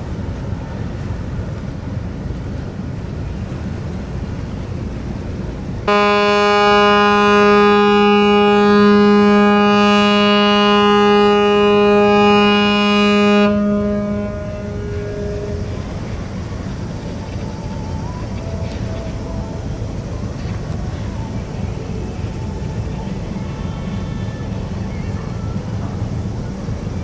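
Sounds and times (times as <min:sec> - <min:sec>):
steady background noise: 0:00.0 - 0:27.0
ship's horn long blast: 0:05.8 - 0:17.5.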